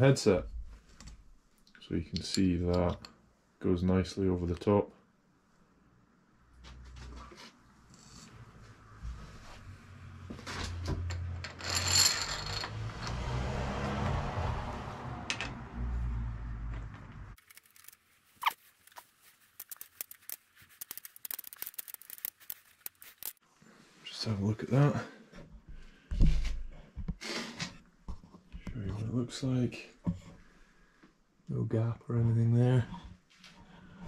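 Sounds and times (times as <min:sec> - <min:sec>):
metal parts knocking and rubbing: 0:11.0 - 0:13.1, 0:18.9 - 0:23.4.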